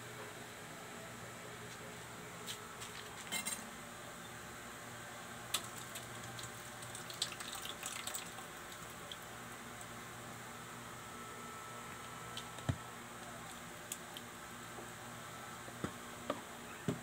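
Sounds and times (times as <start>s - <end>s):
milk pouring into metal bowl: 5.6s - 9.2s.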